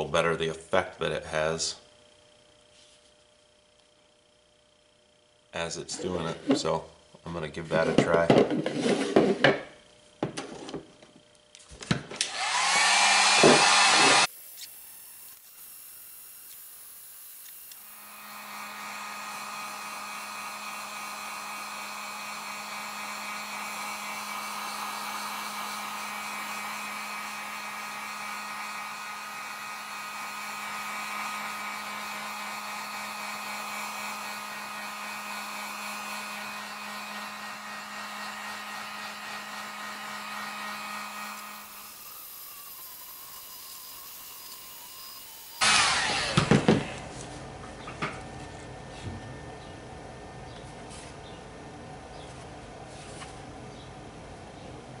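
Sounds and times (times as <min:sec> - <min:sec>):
heat gun blowing air: 0:12.2 - 0:46.9.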